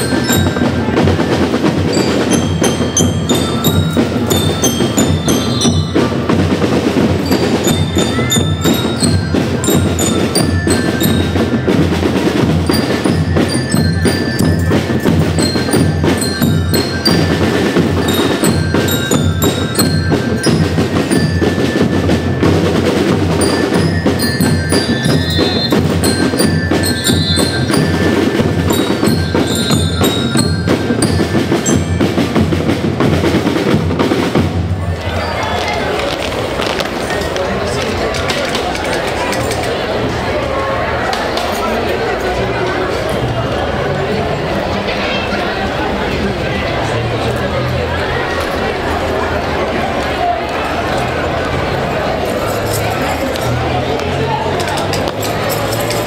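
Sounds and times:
bell lyres ringing melody: 0.0 - 33.3, 51.2 - 56.0
snare and bass drum beats: 0.0 - 35.0.

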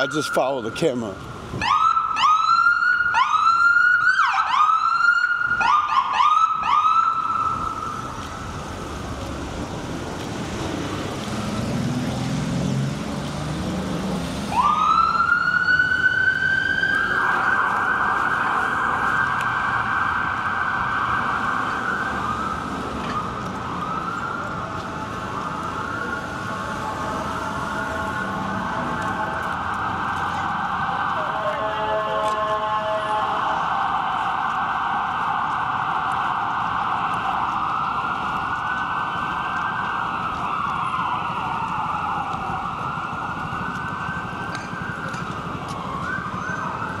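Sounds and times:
emergency vehicle siren: 0.0 - 47.0
traffic noise: 0.0 - 47.0.

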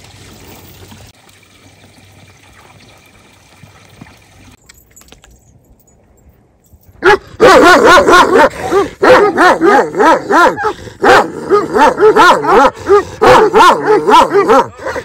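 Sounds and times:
dogs barking loudly: 7.0 - 15.0.

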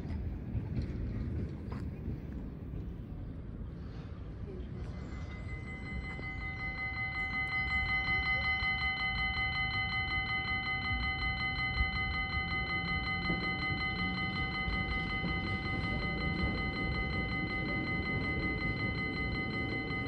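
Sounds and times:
electric warning bell ringing: 5.0 - 20.0.

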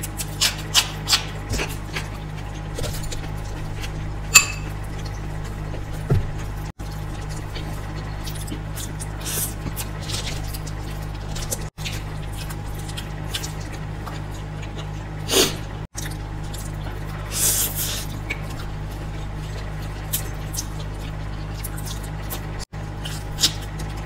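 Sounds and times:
wet chewing clicks and smacks: 0.0 - 4.0, 6.4 - 15.1, 18.1 - 24.0
steady low hum: 0.0 - 24.0.

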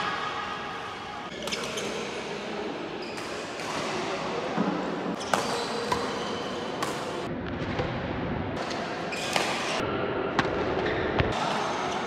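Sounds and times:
sports hall background noise: 0.0 - 12.0
rackets hitting shuttlecock: 5.1 - 7.9, 8.6 - 9.8.

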